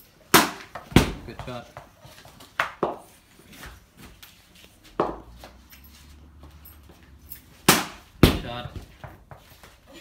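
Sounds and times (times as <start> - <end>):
cricket bat hitting ball: 0.3 - 1.6, 7.7 - 9.2.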